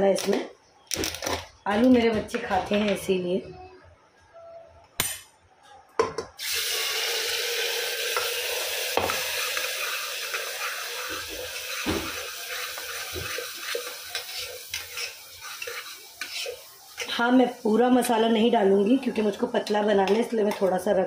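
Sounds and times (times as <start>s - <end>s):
paste sizzling in hot oil: 6.4s - 19.8s.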